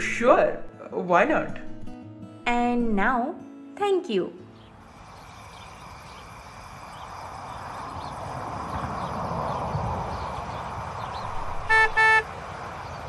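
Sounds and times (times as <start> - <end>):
car road noise: 4.8 - 13.0
car horn honks: 11.6 - 12.3.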